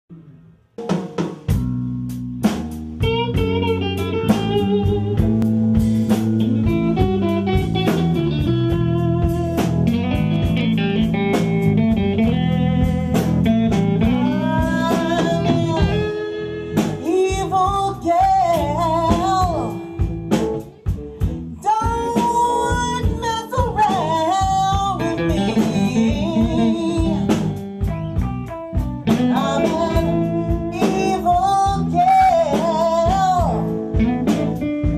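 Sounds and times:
drum kit: 0.1 - 34.9
electric guitar: 0.1 - 34.9
woman singing: 14.0 - 20.1, 21.5 - 27.6, 29.1 - 34.6.

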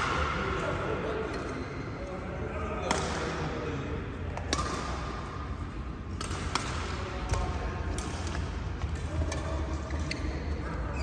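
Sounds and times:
rackets striking shuttlecock: 4.4 - 5.2, 6.1 - 9.5.

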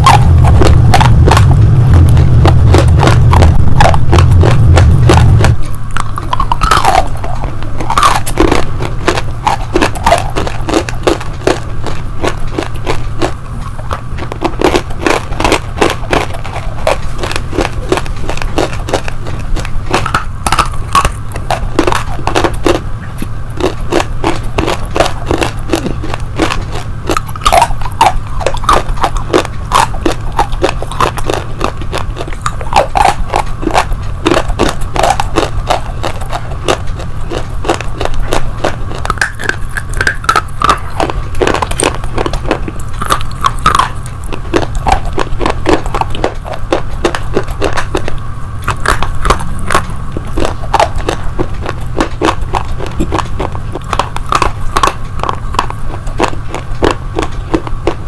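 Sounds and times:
slate crunching in mouth: 0.0 - 58.0.

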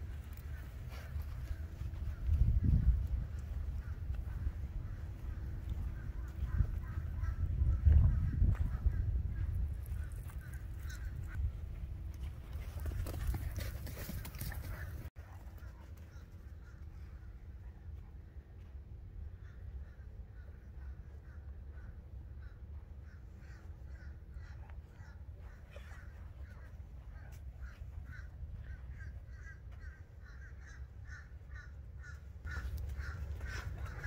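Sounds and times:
birds calling: 19.4 - 34.0.

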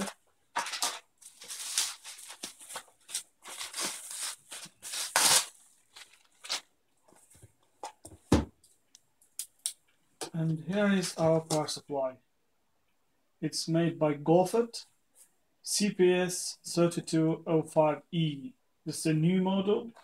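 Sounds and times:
bubble wrap rustling and crinkling: 0.0 - 6.7.

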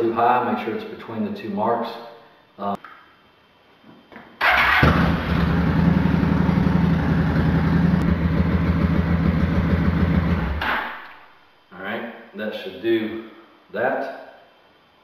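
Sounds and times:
motorcycle starter engaging: 4.4 - 5.4
motorcycle engine idling: 4.5 - 10.6.

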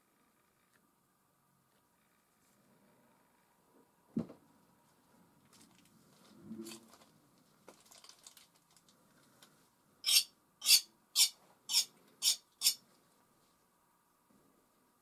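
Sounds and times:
palette knife scraping paint: 10.0 - 12.8.

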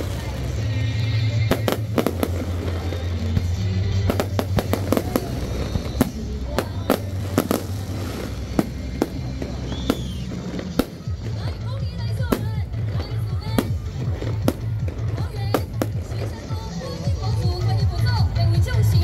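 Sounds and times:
fireworks crackle: 0.0 - 17.4
fireworks bursting: 0.0 - 17.7.

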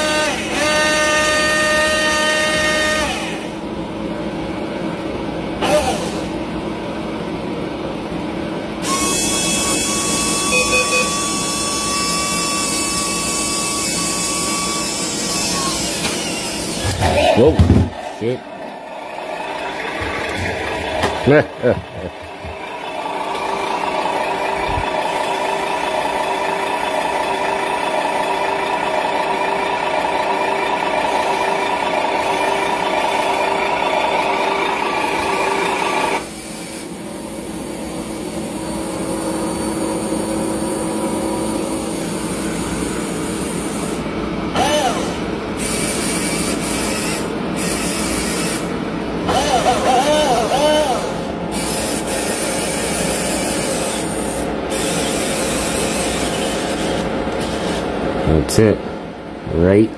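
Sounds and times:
small electric motor whirring: 8.8 - 16.9, 44.6 - 48.7, 49.3 - 57.8.

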